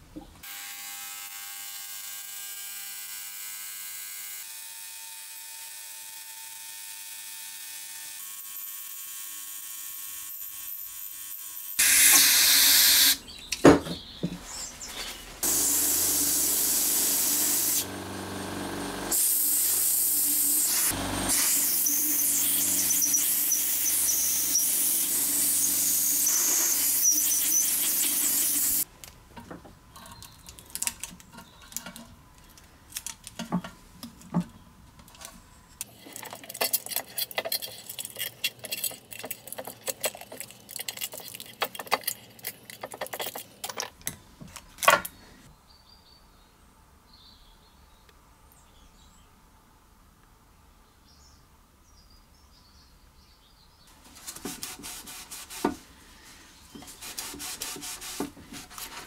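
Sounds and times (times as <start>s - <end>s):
pressurised jet hissing: 15.4s - 18.0s, 18.8s - 28.8s
small metal parts clicking: 35.1s - 44.1s.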